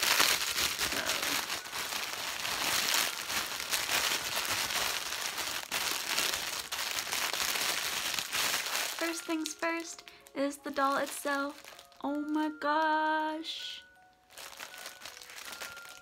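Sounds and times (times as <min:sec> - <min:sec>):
plastic bag crinkling: 0:00.0 - 0:16.0.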